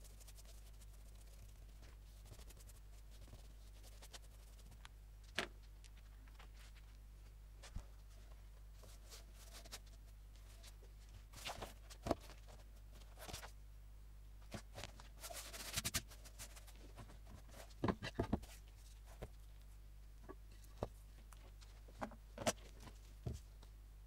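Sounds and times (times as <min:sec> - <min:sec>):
low steady hum: 0:00.0 - 0:24.0
paper and cover rustling: 0:08.8 - 0:13.5.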